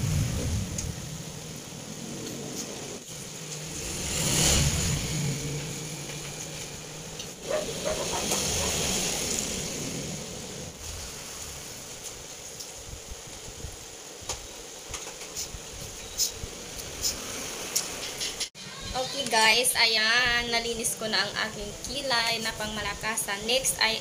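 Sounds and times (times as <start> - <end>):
passing vehicle engine: 2.1 - 10.8.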